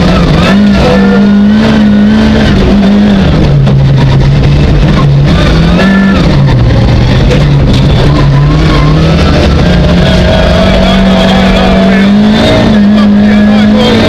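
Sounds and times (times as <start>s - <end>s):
rally car engine revving: 0.0s - 14.0s.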